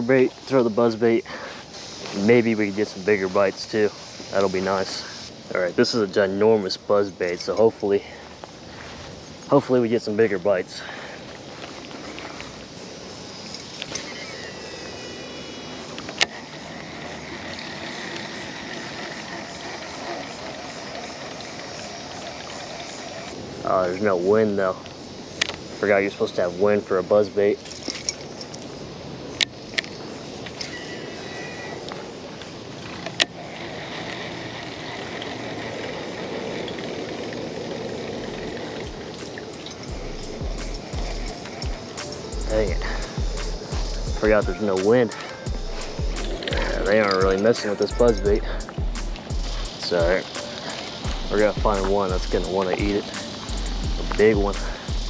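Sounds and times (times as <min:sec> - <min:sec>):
distant road traffic rumble: 0:00.0 - 0:55.0
fishing line paying out whine: 0:11.4 - 0:25.1, 0:25.8 - 0:55.0
reel cranking whirr: 0:11.6 - 0:24.7, 0:29.4 - 0:55.0.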